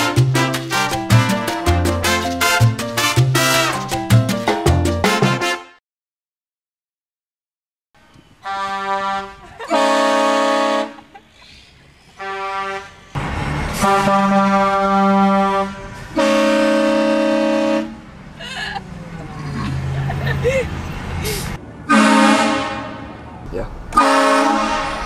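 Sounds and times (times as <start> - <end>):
train horn blasts: 8.4 - 11.0, 12.2 - 13.1, 13.7 - 18.1, 21.9 - 23.2, 23.9 - 25.0.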